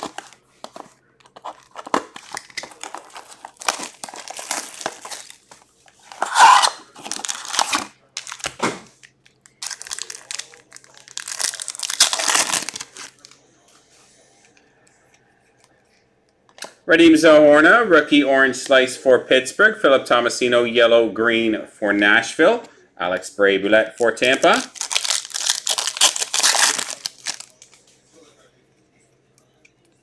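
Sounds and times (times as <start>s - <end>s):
card packs crinkling and tearing: 0.0s - 13.4s, 24.2s - 27.9s.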